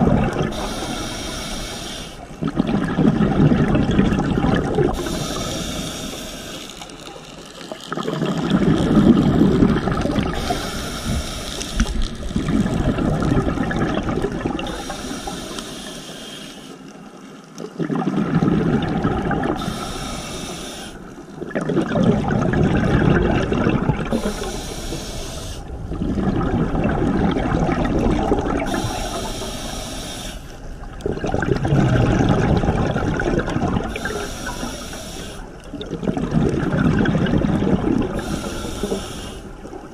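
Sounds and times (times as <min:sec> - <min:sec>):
exhaust bubbles gushing: 0:00.0 - 0:00.7, 0:02.4 - 0:05.2, 0:07.9 - 0:10.5, 0:11.8 - 0:14.8, 0:17.6 - 0:19.6, 0:21.4 - 0:24.5, 0:25.6 - 0:28.9, 0:30.7 - 0:34.2, 0:35.6 - 0:39.9
regulator inhale hiss: 0:00.5 - 0:02.4, 0:04.9 - 0:07.1, 0:10.3 - 0:12.1, 0:14.6 - 0:17.0, 0:19.6 - 0:21.3, 0:24.1 - 0:25.7, 0:28.7 - 0:30.6, 0:33.9 - 0:35.6, 0:38.2 - 0:39.7.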